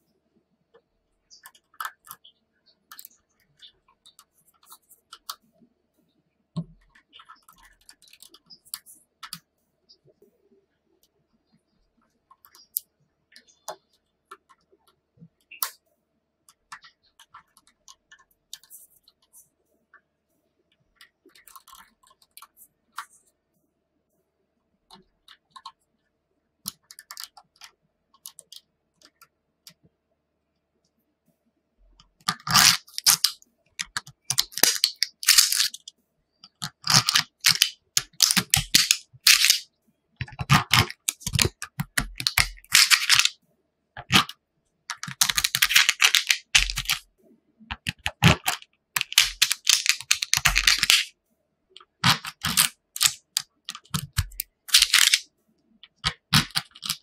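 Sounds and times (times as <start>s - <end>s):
magnet balls clicking and clattering: 32.2s - 43.4s, 44.0s - 47.1s, 47.7s - 51.1s, 51.8s - 57.0s.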